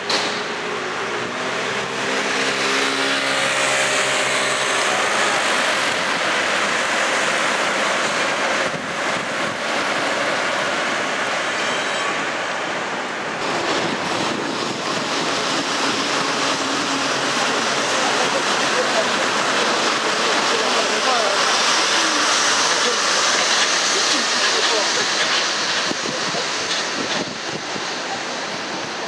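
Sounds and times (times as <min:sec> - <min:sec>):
passing vehicles rolling: 0:00.0 - 0:11.3.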